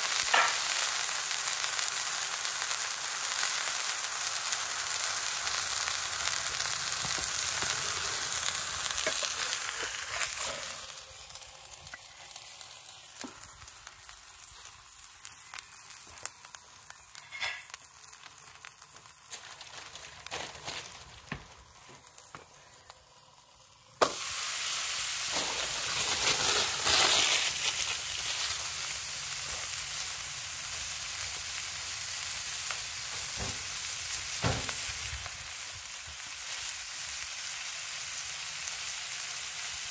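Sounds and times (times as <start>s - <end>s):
burger sizzling in a pan: 0.0s - 39.9s
fat popping and crackling: 5.5s - 23.0s, 24.0s - 24.3s, 25.3s - 29.7s.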